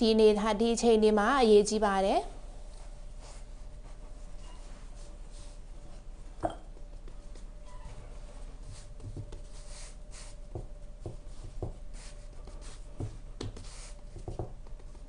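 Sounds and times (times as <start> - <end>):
hands rubbing dough on board: 2.8 - 6.1, 8.3 - 15.0.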